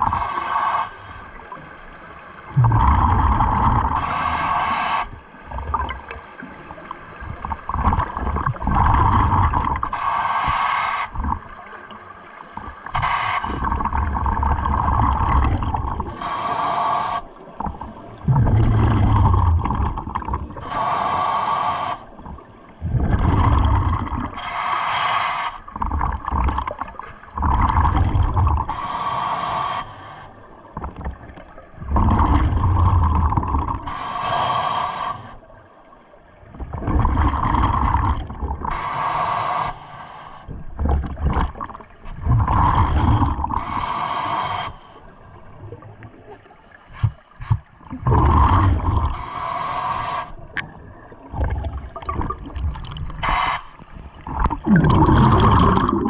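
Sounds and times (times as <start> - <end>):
exhaled bubbles rumbling: 0.0 - 0.2, 2.4 - 16.6, 17.2 - 20.8, 22.0 - 24.4, 25.6 - 28.8, 30.5 - 34.0, 36.2 - 38.8, 40.5 - 44.5, 45.1 - 49.4, 50.0 - 56.0
regulator inhale hiss: 0.0 - 1.4, 4.0 - 5.3, 9.8 - 11.2, 12.9 - 13.8, 16.0 - 17.5, 20.6 - 22.2, 24.4 - 25.8, 28.6 - 30.5, 33.8 - 35.5, 38.7 - 40.7, 42.7 - 45.6, 46.5 - 47.8, 49.0 - 50.6, 53.2 - 54.2.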